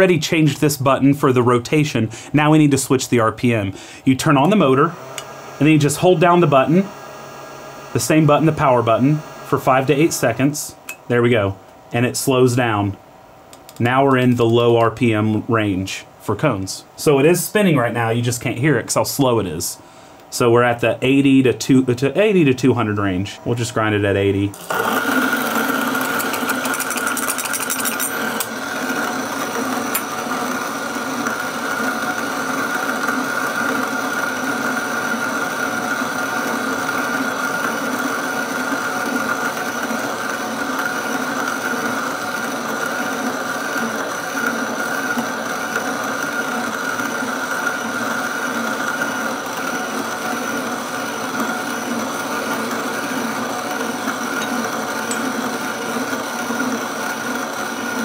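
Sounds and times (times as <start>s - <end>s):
coffee grinder motor hum: 4.2s - 10.3s, 24.6s - 58.0s
coffee beans crackling: 24.6s - 29.2s.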